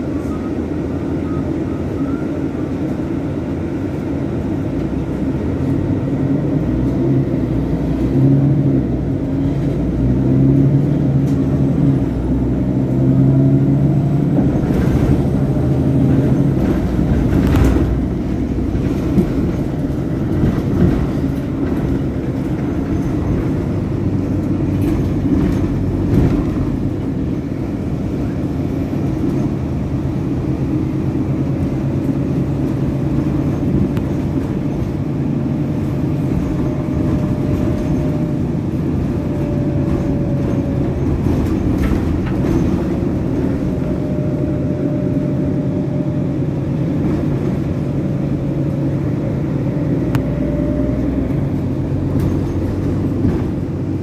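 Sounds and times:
bus engine hum: 0:00.0 - 0:54.0
road and tyre rumble: 0:00.0 - 0:54.0.

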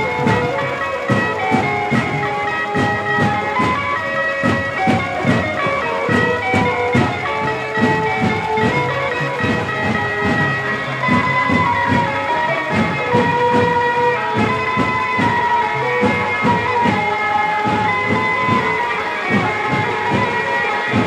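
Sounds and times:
reedy wind instrument melody: 0:00.0 - 0:21.0
steady drumbeat: 0:00.0 - 0:21.0.

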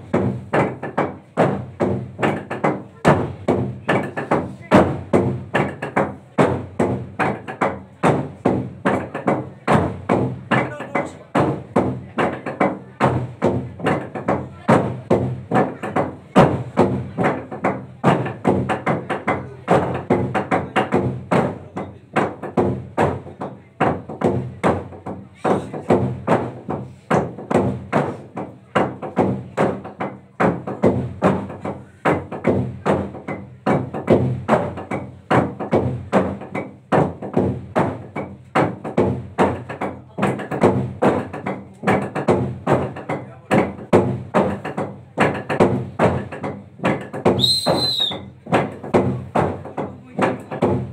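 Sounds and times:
wooden log drum strikes: 0:00.0 - 0:50.9.

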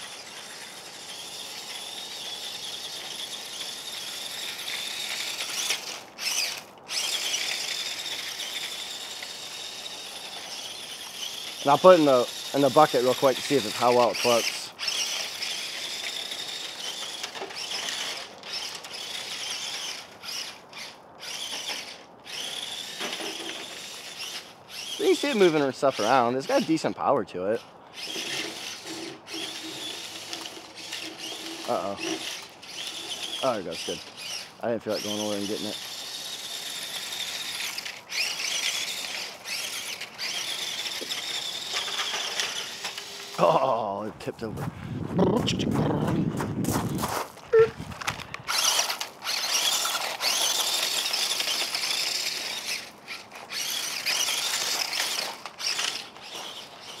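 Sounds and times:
toy truck electric motor whining: 0:00.0 - 0:43.8, 0:45.6 - 0:57.0.

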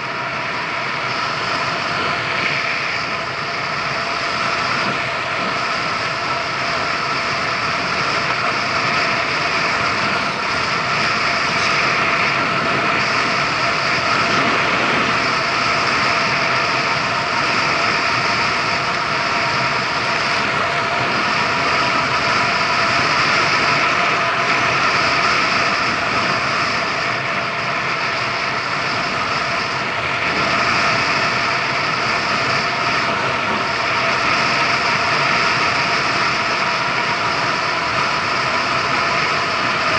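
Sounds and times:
scooter engine running: 0:00.0 - 0:27.4
road and wind noise: 0:00.0 - 0:39.9.

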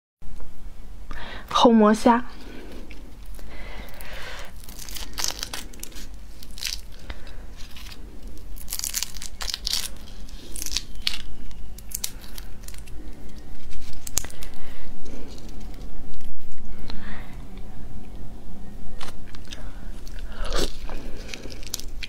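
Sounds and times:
shrimp shells crackling and tearing: 0:02.8 - 0:16.9, 0:19.0 - 0:22.0.

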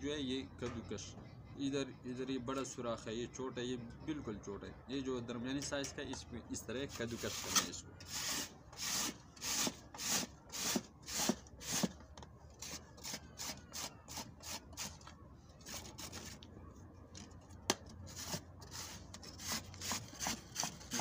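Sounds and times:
carrot grated on metal grater: 0:18.1 - 0:21.0.

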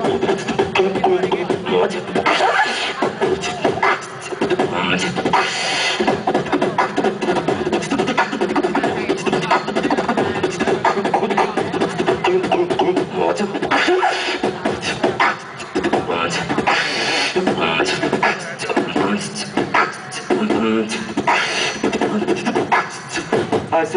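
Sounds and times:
person beatboxing into microphone: 0:00.0 - 0:23.9.

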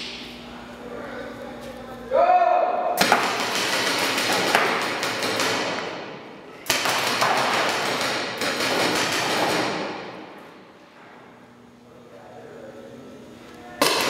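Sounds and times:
paintball marker rapid firing: 0:03.0 - 0:06.0, 0:06.6 - 0:10.2.

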